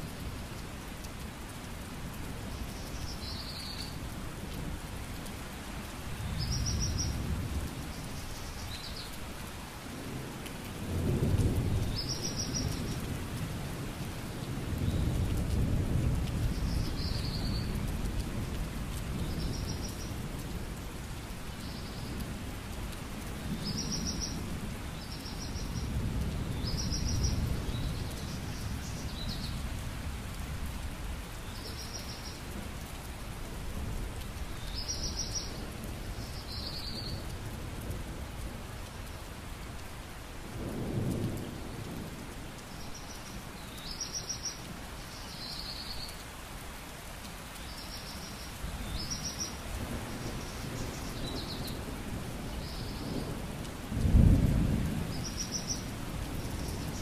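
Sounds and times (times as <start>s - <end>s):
steady rain: 0.0s - 57.0s
rumbling thunder: 40.5s - 42.3s, 49.8s - 57.0s.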